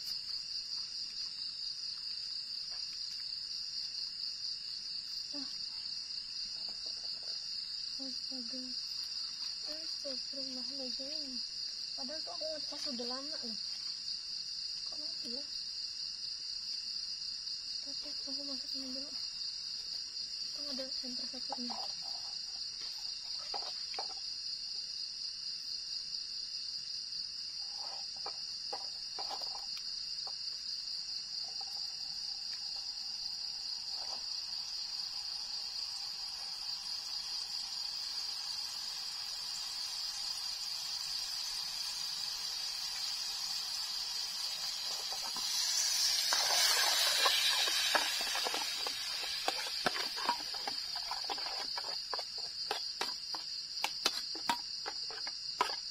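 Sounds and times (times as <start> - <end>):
crickets trilling: 0.0 - 55.9
loud hiss: 34.2 - 52.6.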